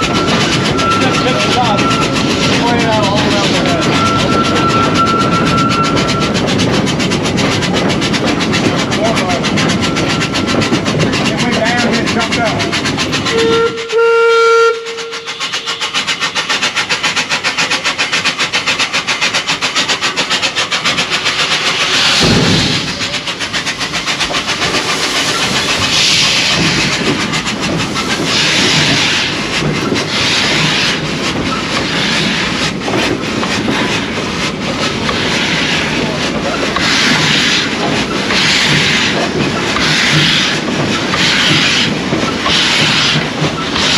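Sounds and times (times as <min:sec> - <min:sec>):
steam hissing bursts: 0:00.0 - 0:43.9
steam locomotive chuffing: 0:00.0 - 0:43.9
steam whistle blast: 0:13.3 - 0:15.9.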